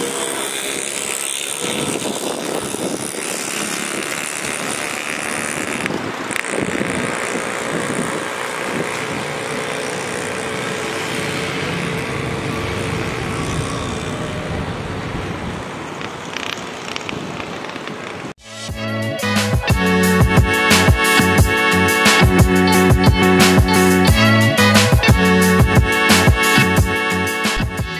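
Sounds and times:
faint steady engine whine: 0.0s - 17.0s.

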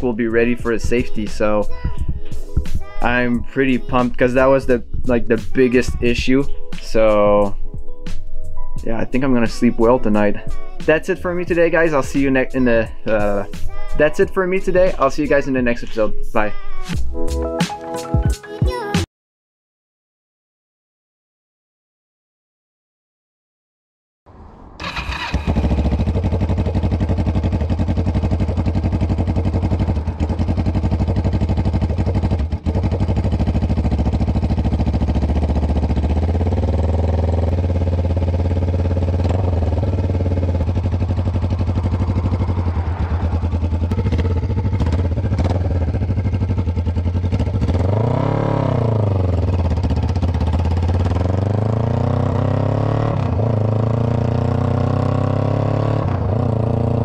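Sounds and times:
motorcycle engine running: 24.8s - 57.0s.

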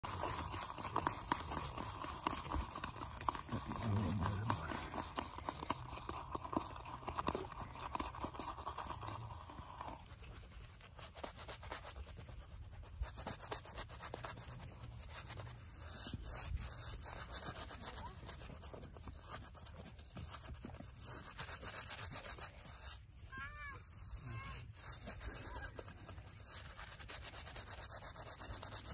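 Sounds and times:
shaving brush whipping lather: 0.0s - 12.4s, 20.3s - 28.9s
brush rubbing on beard: 0.0s - 28.9s.

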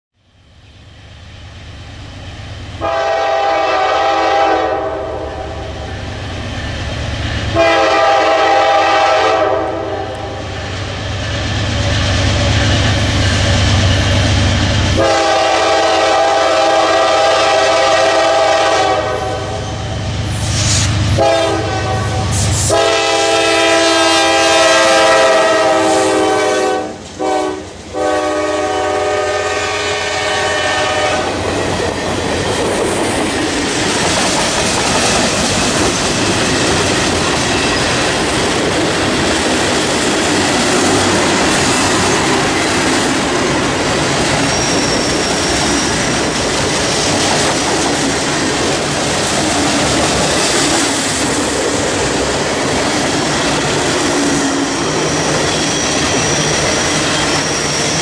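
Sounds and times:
locomotive air horn blasts: 2.8s - 5.8s, 7.6s - 10.4s, 14.9s - 19.8s, 20.6s - 31.4s
train wheels clickety-clack: 4.7s - 17.0s, 30.6s - 58.0s.

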